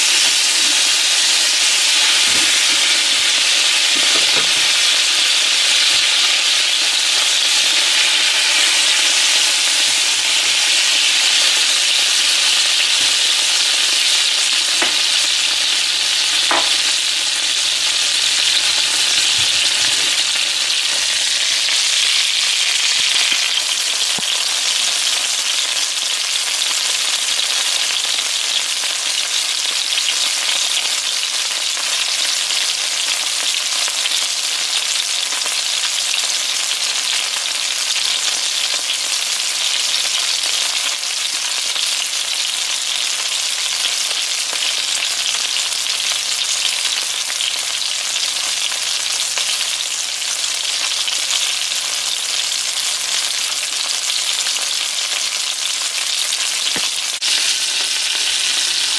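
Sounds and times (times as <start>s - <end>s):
fish frying in oil: 0.0s - 58.9s.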